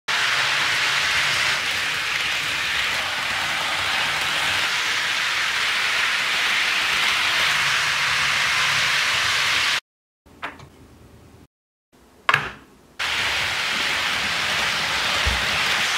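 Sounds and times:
model train wheels on rails: 0:00.1 - 0:09.8, 0:13.0 - 0:15.9.

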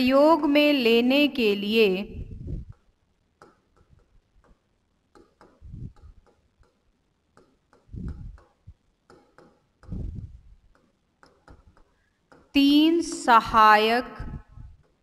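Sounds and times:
pen tapping on writing board: 0:02.7 - 0:10.1, 0:10.7 - 0:13.3.

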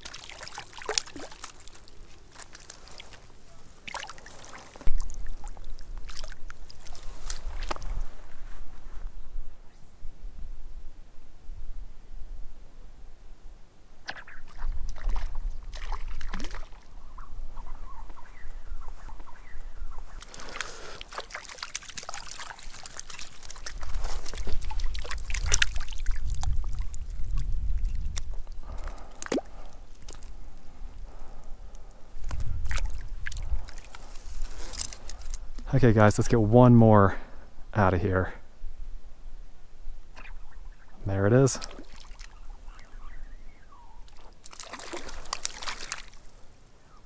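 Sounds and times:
lake water splashing: 0:00.0 - 0:08.2, 0:14.1 - 0:35.4, 0:40.1 - 0:47.0.

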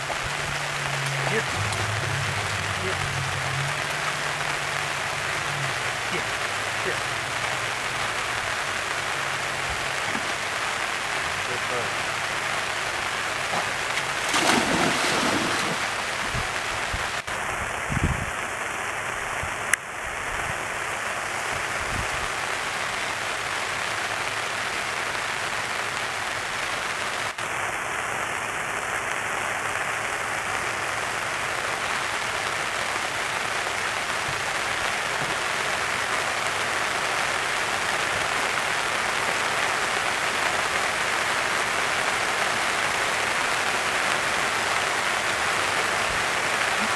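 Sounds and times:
rain falling on a pond: 0:00.0 - 0:46.9
dog splashing into water: 0:13.5 - 0:16.6.

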